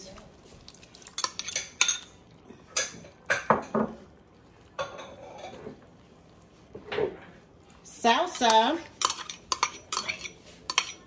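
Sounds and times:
metal spoon scraping a bowl: 8.3s - 11.0s.

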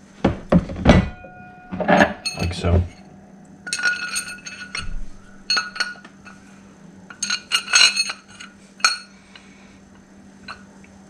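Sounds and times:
steel bolts clinking: 1.0s - 6.4s, 7.1s - 9.1s.

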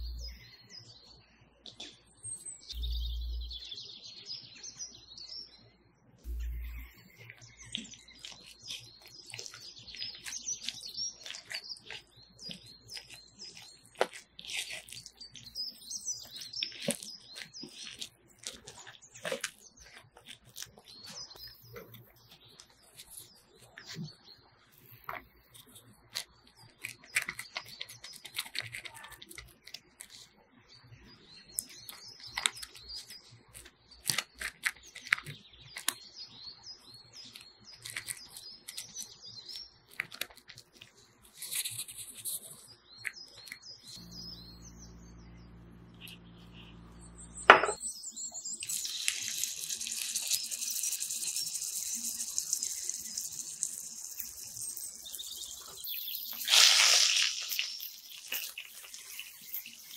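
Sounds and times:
patty sizzling in hot oil: 46.7s - 59.9s.

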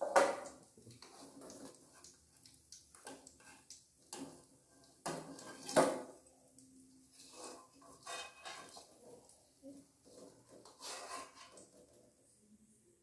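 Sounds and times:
metal spatula scraping a wok: 5.0s - 6.0s, 7.1s - 9.3s, 10.0s - 12.0s.

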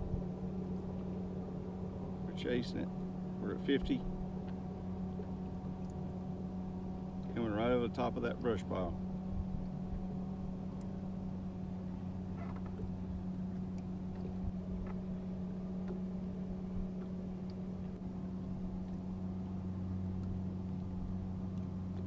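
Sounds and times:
faint clicks: 5.2s - 6.0s, 10.7s - 10.9s, 13.6s - 15.0s, 16.9s - 18.0s, 20.0s - 22.0s.

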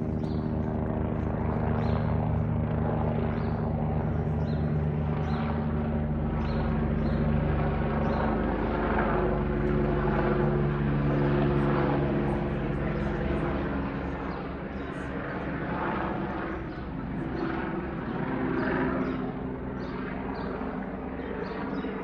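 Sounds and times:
rotor blades beating: 0.0s - 12.2s
helicopter turbine hum: 0.0s - 22.0s.

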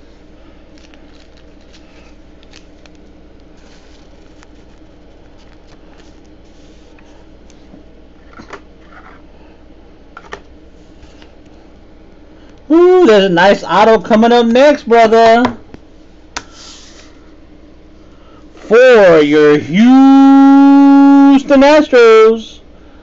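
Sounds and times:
steady low hum: 0.0s - 23.0s
trading cards rustling: 0.6s - 7.7s.

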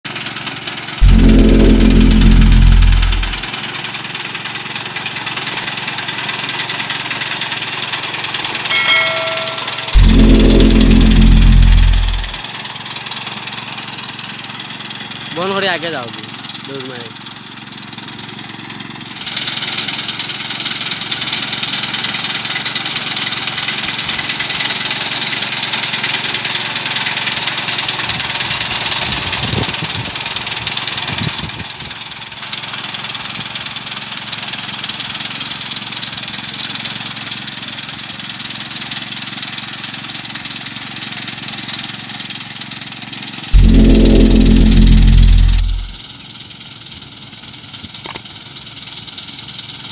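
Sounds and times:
loud low multi-tone hum: 1.0s - 3.5s, 8.7s - 12.4s, 43.6s - 46.0s
power reaper engine running: 1.0s - 3.5s, 8.7s - 12.4s, 43.6s - 46.0s.

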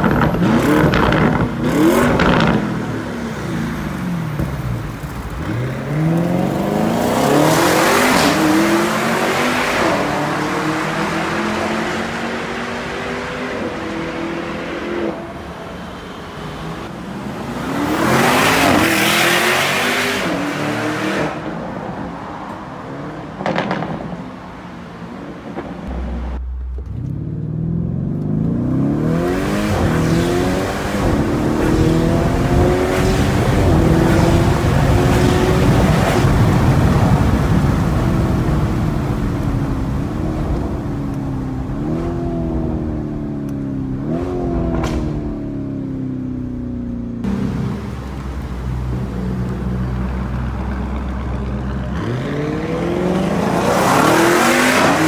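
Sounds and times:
car engine accelerating: 25.5s - 55.0s.

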